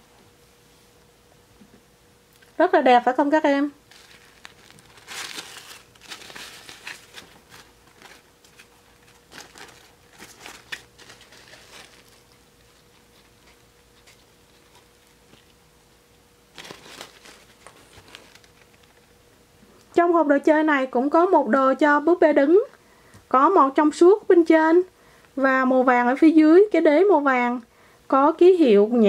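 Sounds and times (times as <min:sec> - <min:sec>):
fabric rustling and crinkling: 0:03.8 - 0:12.3, 0:16.5 - 0:19.0.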